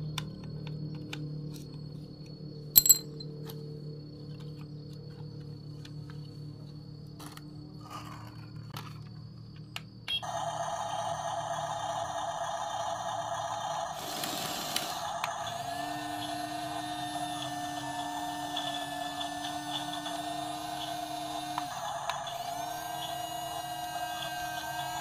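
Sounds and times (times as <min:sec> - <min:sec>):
handling clicks: 0:02.8 - 0:03.2
toy motors whining: 0:10.2 - 0:25.0.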